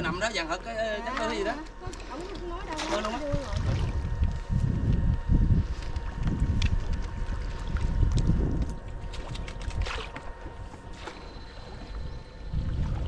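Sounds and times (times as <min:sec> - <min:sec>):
water splashing around boat: 0:00.9 - 0:13.0
wind rumble on microphone: 0:01.7 - 0:13.0.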